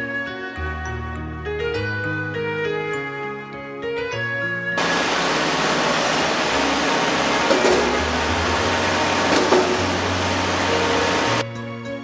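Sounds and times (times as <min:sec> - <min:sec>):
mechanical knocks: 0:04.8 - 0:10.8
concrete mixer pump running: 0:04.8 - 0:11.4.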